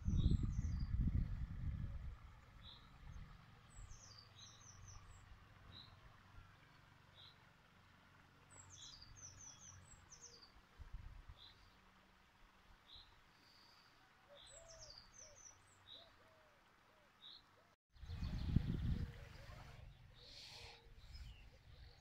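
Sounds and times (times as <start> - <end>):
songbird calls: 3.7 - 6.0, 8.5 - 10.6, 12.8 - 22.0.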